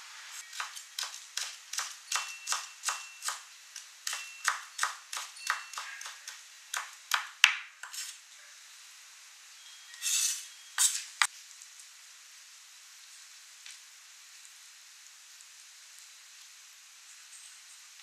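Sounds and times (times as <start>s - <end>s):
strips scraped on board: 7.8s - 8.2s, 10.0s - 11.3s.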